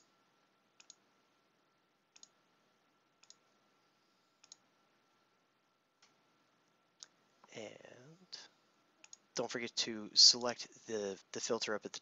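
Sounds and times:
computer mouse clicking: 0.8s - 1.0s, 2.1s - 2.4s, 3.2s - 3.4s, 4.4s - 4.6s, 9.0s - 9.2s.

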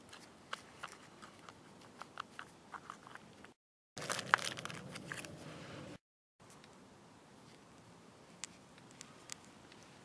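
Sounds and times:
rustling and handling: 0.0s - 5.6s.

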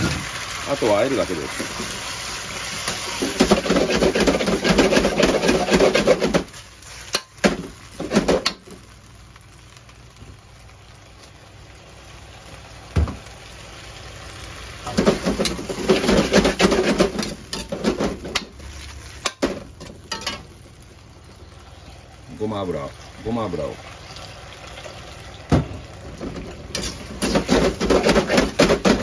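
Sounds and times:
metal ladle scraping a wok: 1.5s - 7.4s, 14.9s - 19.5s, 26.7s - 29.0s.

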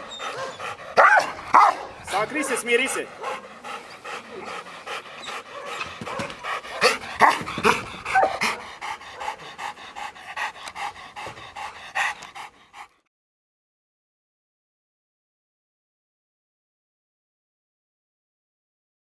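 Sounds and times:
dog panting: 0.0s - 13.1s.

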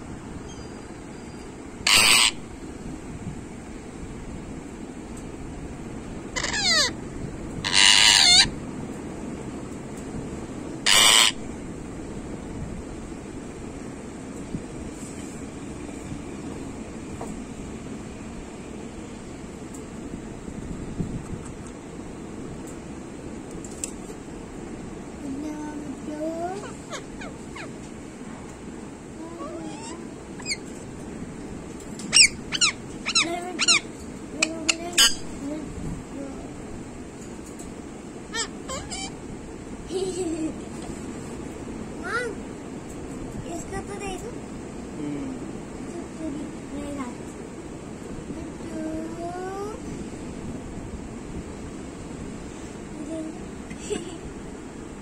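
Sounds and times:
parakeet screeching: 0.5s - 2.4s, 6.4s - 7.0s, 7.6s - 8.5s, 10.8s - 11.4s, 26.6s - 27.8s, 29.4s - 30.8s, 32.1s - 35.4s, 38.3s - 39.2s
parakeet sharp shrieks: 1.8s - 2.4s, 6.4s - 7.0s, 7.6s - 8.5s, 10.9s - 11.4s.

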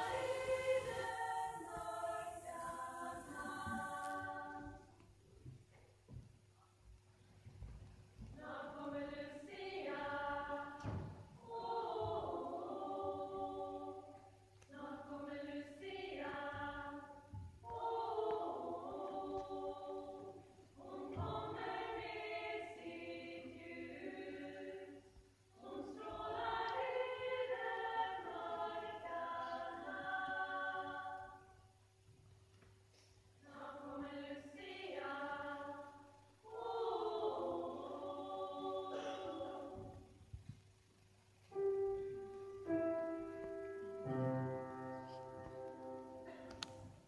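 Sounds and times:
choir singing unaccompanied: 0.0s - 5.0s, 8.3s - 31.7s, 33.4s - 40.1s.

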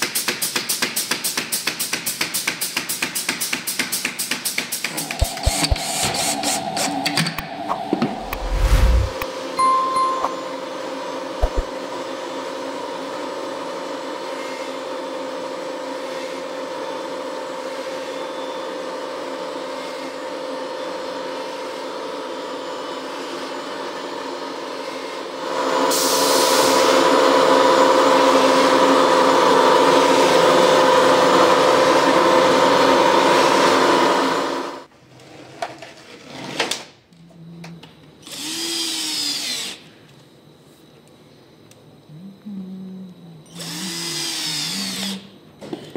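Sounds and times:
vacuum press machine hum: 4.8s - 19.7s
cordless drill driving screws: 38.2s - 39.8s, 43.5s - 45.2s.

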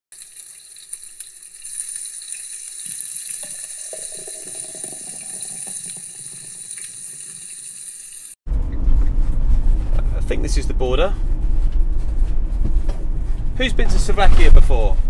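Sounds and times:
sausages sizzling on a grill: 0.1s - 8.4s.

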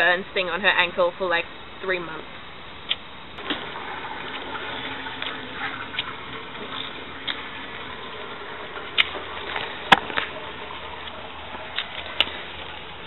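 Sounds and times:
steady background hiss: 0.0s - 13.0s
water dripping: 2.9s - 13.0s.

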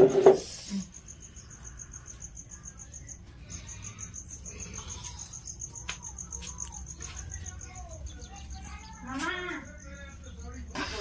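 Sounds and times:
cricket chirping: 0.0s - 11.0s.

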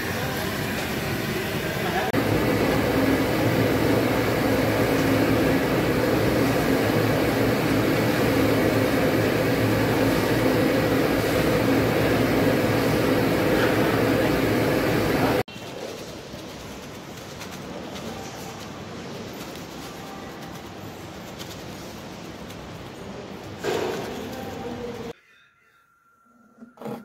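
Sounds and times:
loud mechanical hum: 0.0s - 25.2s.

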